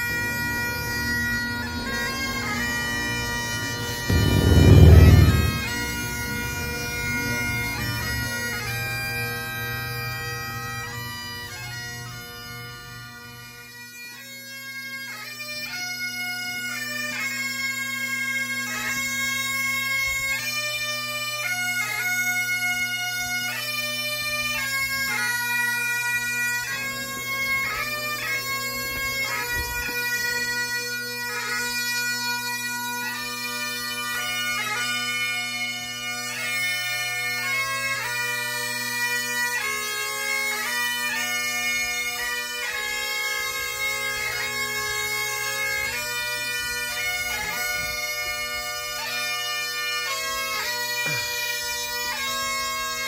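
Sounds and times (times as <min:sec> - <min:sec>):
bagpipes playing a lament: 0:00.0 - 0:53.0
low rumble: 0:04.1 - 0:06.6.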